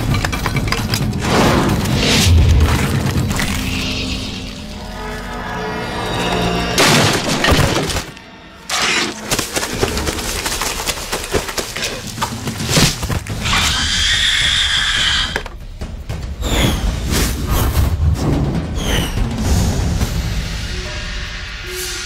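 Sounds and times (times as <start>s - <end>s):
dramatic film score: 0.0s - 22.0s
crashes of things smashing: 6.8s - 11.7s.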